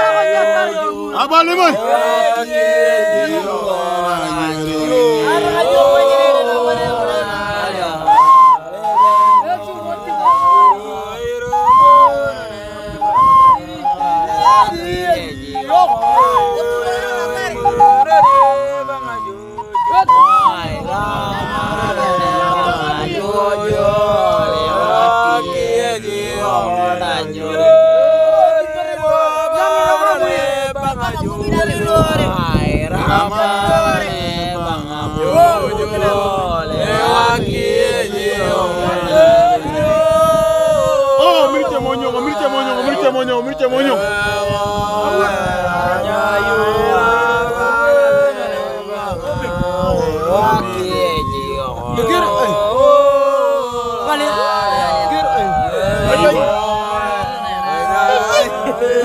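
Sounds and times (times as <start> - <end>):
man chanting a song: 0.0 - 59.0.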